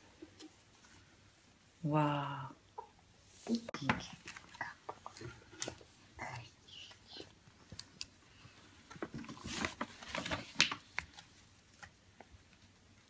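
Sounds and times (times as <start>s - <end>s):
glossy paper rustling: 7.8s - 12.0s
sharp paper crackle: 9.1s - 11.4s.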